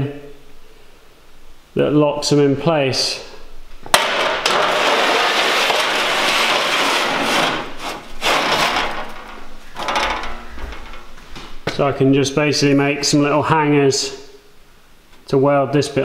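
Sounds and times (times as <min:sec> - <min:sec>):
metal scraping on metal: 0:04.2 - 0:11.2.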